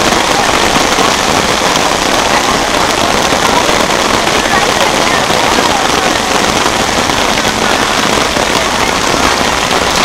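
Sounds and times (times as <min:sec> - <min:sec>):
rain falling on umbrellas: 0:00.0 - 0:10.0.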